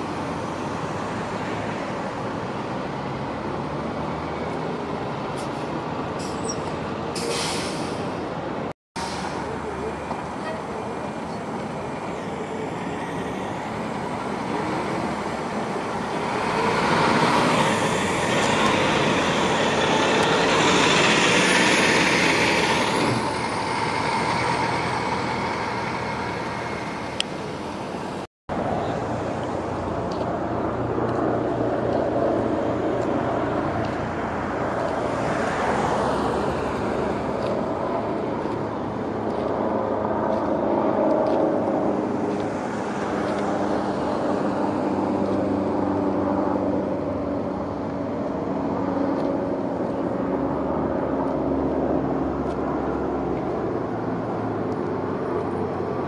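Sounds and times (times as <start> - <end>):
buses and road traffic passing: 0.0 - 56.0
vehicle passing loudly: 11.9 - 56.0.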